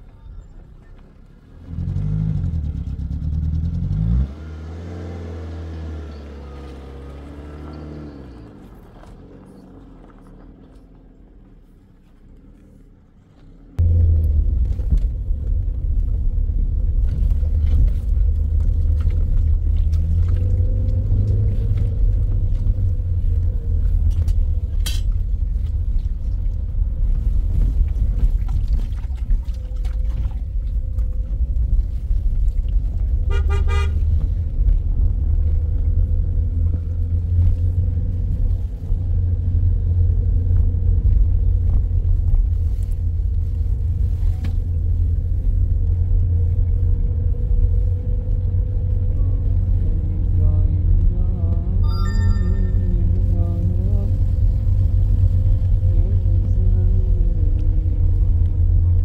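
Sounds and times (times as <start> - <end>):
car engine and road rumble: 0.0 - 59.0
car horn toot: 33.2 - 34.1.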